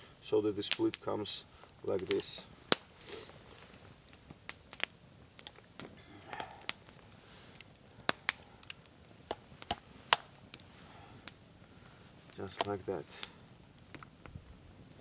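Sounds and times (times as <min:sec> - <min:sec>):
green stick splitting cracks: 0:02.1 - 0:02.9, 0:07.6 - 0:11.4, 0:12.1 - 0:14.3.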